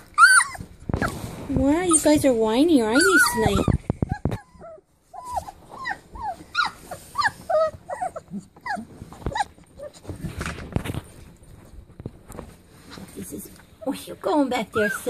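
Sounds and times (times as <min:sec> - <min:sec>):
puppies whining: 0:00.0 - 0:10.4, 0:13.8 - 0:15.0.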